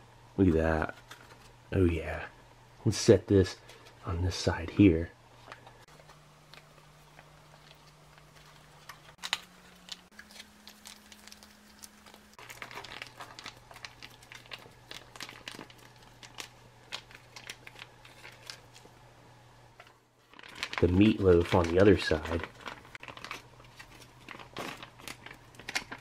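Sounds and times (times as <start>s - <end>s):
foil pouch crinkling: 5.9s - 18.9s, 20.2s - 26.0s.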